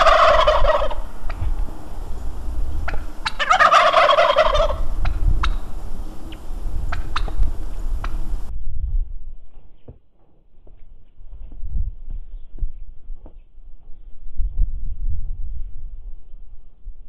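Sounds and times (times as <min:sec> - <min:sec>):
turkey gobbling: 0:00.0 - 0:01.5, 0:02.8 - 0:05.6, 0:06.9 - 0:07.4.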